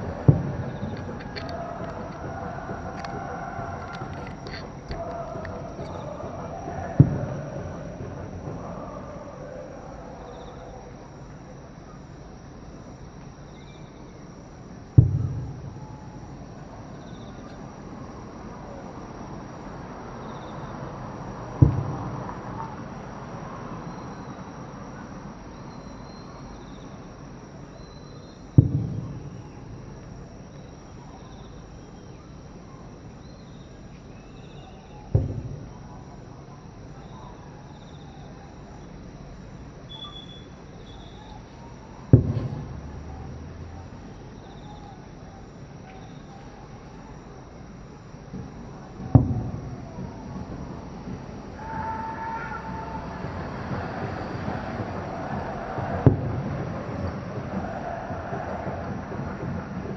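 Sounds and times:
distant firework booms: 0.0s - 11.0s, 14.9s - 17.4s, 21.3s - 22.8s, 28.6s - 30.1s, 35.0s - 36.3s, 39.6s - 44.2s, 48.3s - 59.9s.

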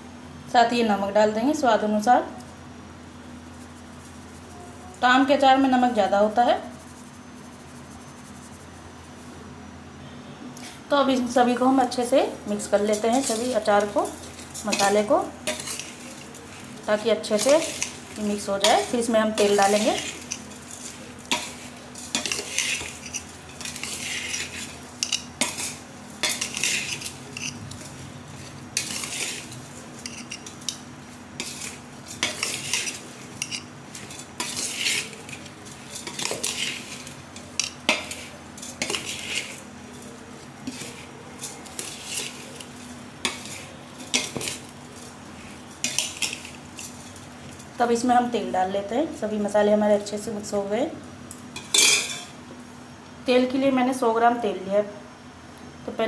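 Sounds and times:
metal spoon scraping steel bowl: 12.6s - 30.8s, 31.4s - 47.0s.

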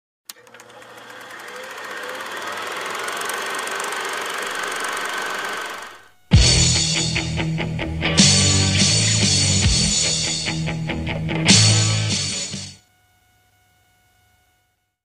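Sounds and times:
rapid mechanical clatter: 0.3s - 6.1s
rock music: 6.3s - 12.8s.

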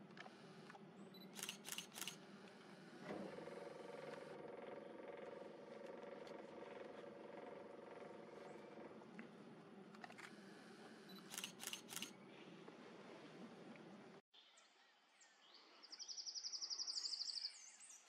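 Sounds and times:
quick clicks: 0.1s - 2.2s, 11.1s - 12.2s
camera lens motor hum: 0.1s - 4.4s, 10.0s - 12.2s.

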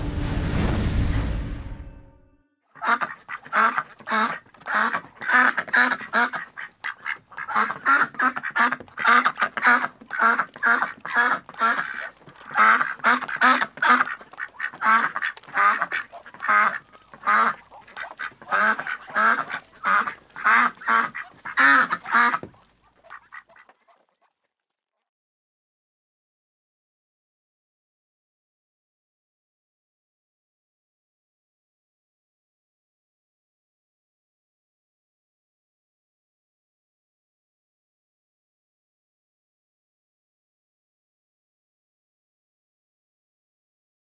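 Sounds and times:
ducks quacking: 2.7s - 24.4s.

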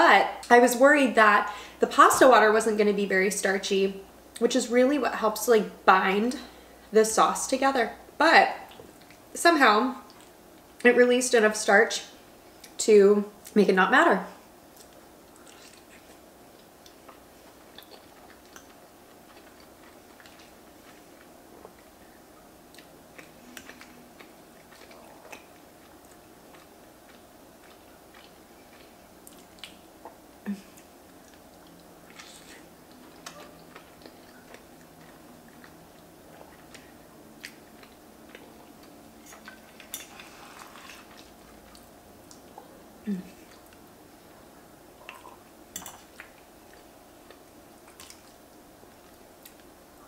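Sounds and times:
steady low hum: 0.0s - 50.0s
chewing and mouth sounds: 8.6s - 9.3s, 14.7s - 22.0s, 22.6s - 44.3s, 44.9s - 50.0s.

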